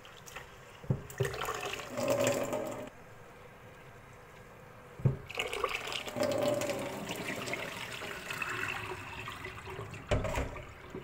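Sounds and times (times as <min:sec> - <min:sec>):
tap water splashing into bowl: 0:00.2 - 0:01.7.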